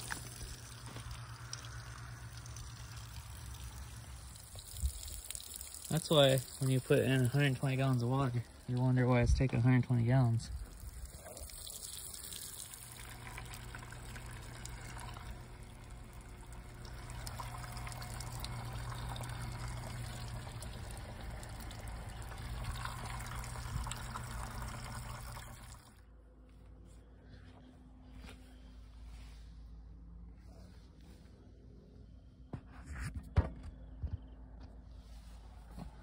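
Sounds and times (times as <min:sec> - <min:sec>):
low hum: 0:00.0 - 0:05.8, 0:06.4 - 0:36.0
water running: 0:00.0 - 0:26.0.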